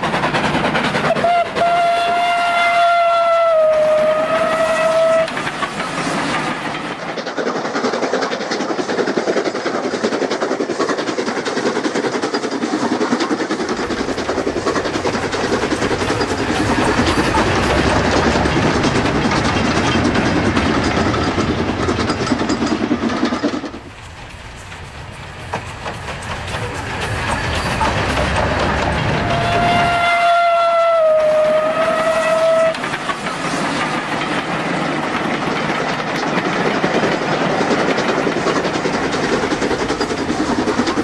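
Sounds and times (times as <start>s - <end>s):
model locomotive running: 0.0s - 41.0s
steam whistle: 1.1s - 5.3s, 29.1s - 32.8s.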